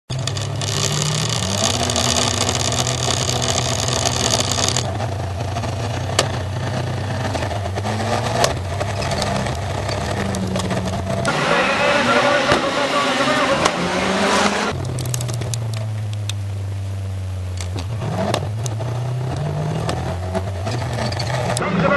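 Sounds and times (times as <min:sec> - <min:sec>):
race car engine revving: 0:00.1 - 0:21.9
sharp clicks: 0:14.7 - 0:16.4.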